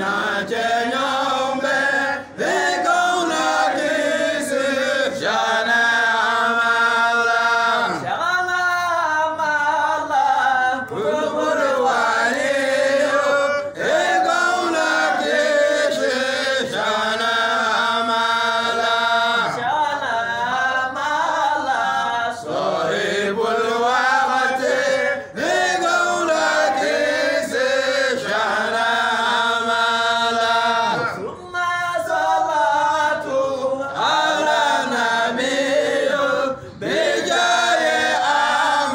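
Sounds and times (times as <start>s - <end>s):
men chanting together: 0.0s - 8.6s, 9.4s - 38.9s.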